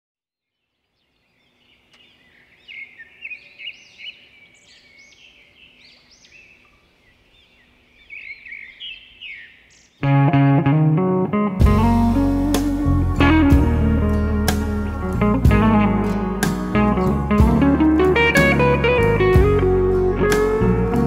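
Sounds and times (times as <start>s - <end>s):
small birds chirping: 0.4s - 10.1s
guitar music: 10.0s - 21.0s.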